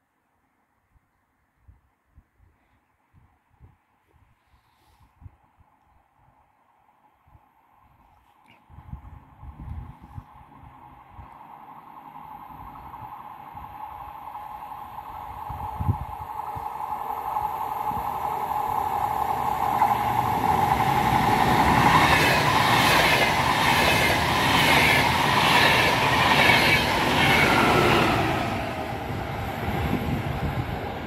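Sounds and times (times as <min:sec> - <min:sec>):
train passing at speed: 0:08.7 - 0:31.0.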